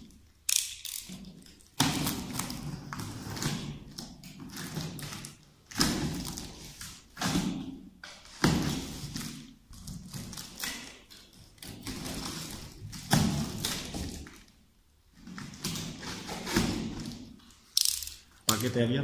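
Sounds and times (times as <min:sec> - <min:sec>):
box cutter slitting packing tape: 0:00.4 - 0:07.6.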